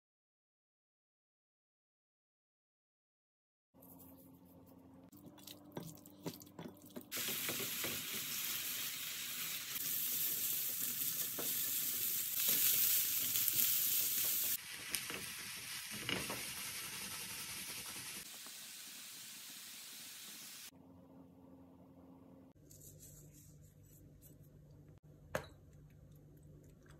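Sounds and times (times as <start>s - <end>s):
food sizzling in frying pan: 7.1s - 20.7s.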